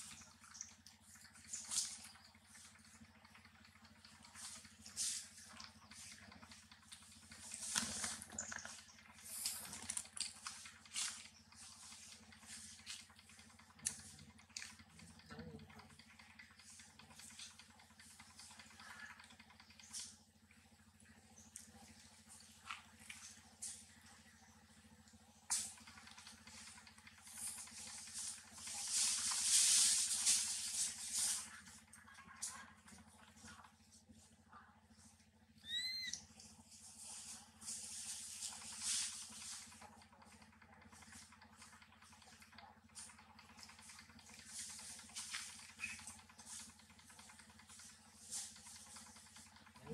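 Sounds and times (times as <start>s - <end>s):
faint low hum: 0.0s - 49.9s
rustling and scraping of leaf litter: 4.4s - 6.2s, 7.4s - 13.0s, 27.6s - 31.6s, 36.7s - 39.8s
dry leaves rustling and crackling: 28.0s - 31.5s.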